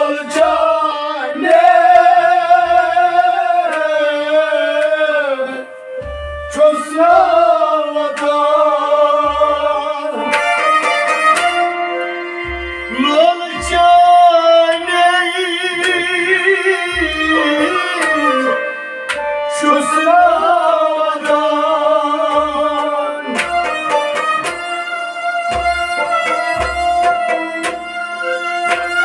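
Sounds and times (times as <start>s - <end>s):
man singing: 0.0s - 5.8s, 6.4s - 10.4s, 12.8s - 18.8s, 19.4s - 23.8s
bowed string instrument: 0.0s - 29.0s
harmonium drone: 5.4s - 29.0s.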